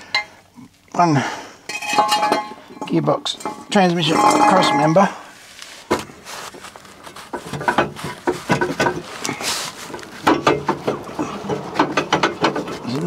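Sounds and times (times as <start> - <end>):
metal tools clinking: 1.7 - 5.2.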